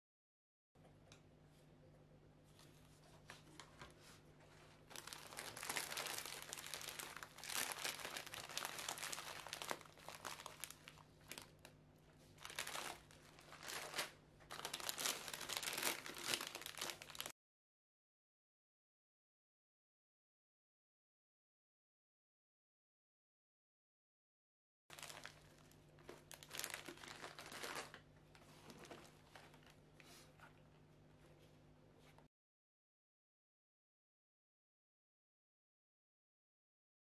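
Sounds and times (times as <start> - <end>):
faint steady hum: 0.8 - 17.3
plastic packaging crinkling: 4.9 - 11.7, 12.4 - 17.3, 24.9 - 29.8.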